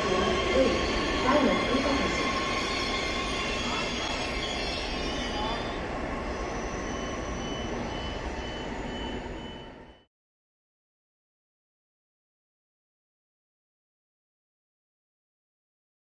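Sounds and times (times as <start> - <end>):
high squealing tones: 0.0 - 10.0
train wheels on rail: 0.0 - 10.0
faint pulsing high tone: 0.0 - 10.1.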